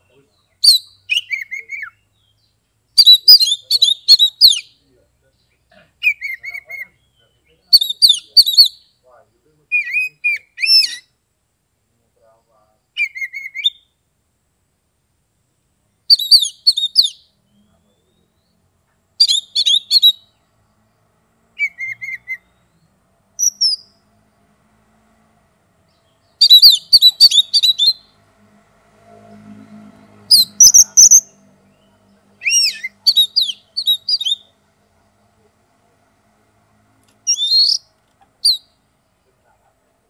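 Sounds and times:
bird whistling and chirping: 0.6s - 2.4s, 3.0s - 4.7s, 6.0s - 8.9s, 9.7s - 11.1s, 13.0s - 13.9s, 16.1s - 17.3s, 19.2s - 20.3s, 21.6s - 22.8s, 23.4s - 23.9s, 26.4s - 28.1s, 30.3s - 31.4s, 32.4s - 34.5s, 37.3s - 38.7s.

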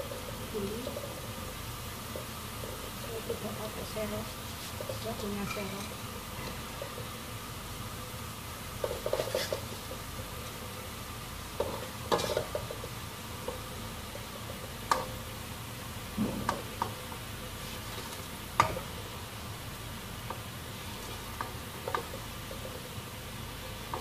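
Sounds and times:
oil sizzling: 0.0s - 24.0s
spatula scraping a wok: 3.4s - 6.9s, 8.8s - 9.9s, 11.7s - 12.6s.

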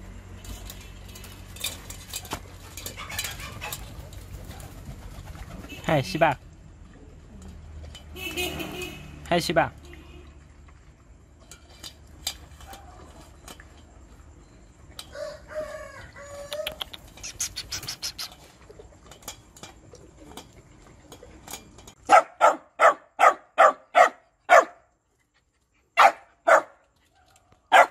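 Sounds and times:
dog eating from metal pot: 0.0s - 5.0s, 6.4s - 8.2s, 9.7s - 15.2s, 16.7s - 22.2s
dog barking: 22.1s - 24.8s, 26.0s - 26.8s.

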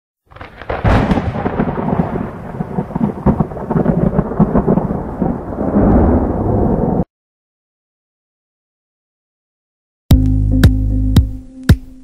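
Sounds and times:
thunder crack and rumble: 0.3s - 7.1s.

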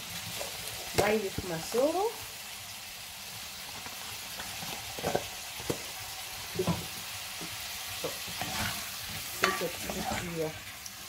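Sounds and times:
food sizzling in oil: 0.0s - 11.0s
spatula scraping and knocking pot: 6.6s - 10.4s.

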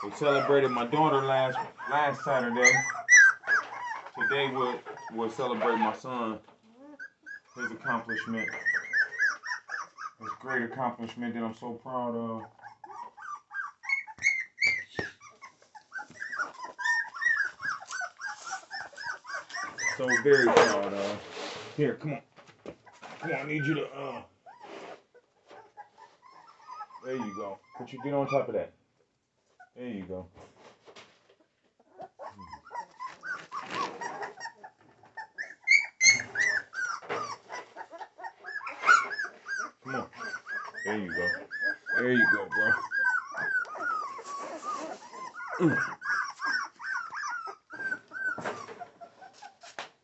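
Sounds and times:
dogs whining: 0.0s - 10.7s, 12.4s - 21.1s, 22.8s - 28.5s, 31.8s - 49.8s.

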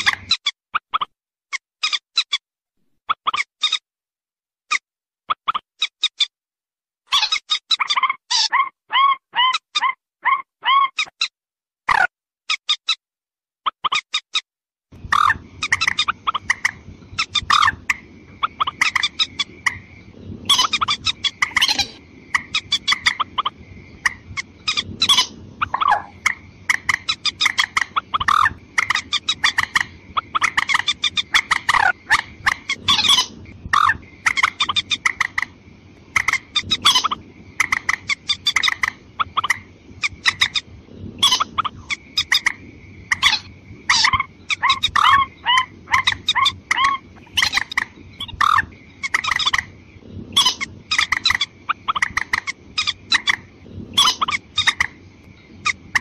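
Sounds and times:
bird calling in hollow notes: 20.4s - 26.2s.

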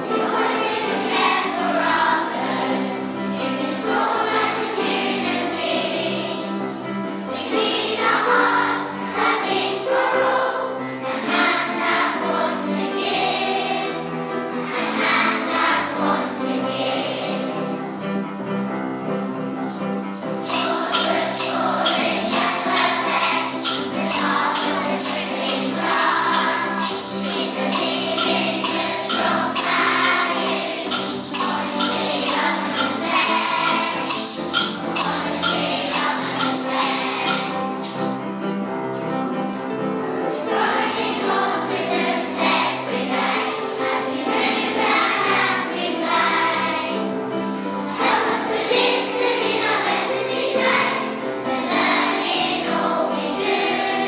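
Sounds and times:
group of voices singing: 0.0s - 6.6s, 7.3s - 17.8s, 20.4s - 38.0s, 40.4s - 47.1s, 47.8s - 54.0s
backing music: 0.0s - 54.0s
jingling percussion: 20.2s - 38.4s, 47.8s - 53.9s.

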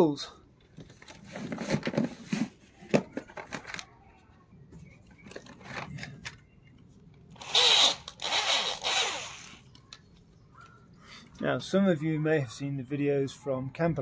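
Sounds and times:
loud rasping burst: 7.4s - 9.6s.

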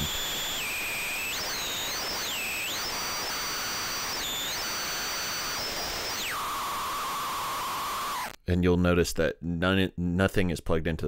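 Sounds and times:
harsh electronic hiss: 0.0s - 8.4s.

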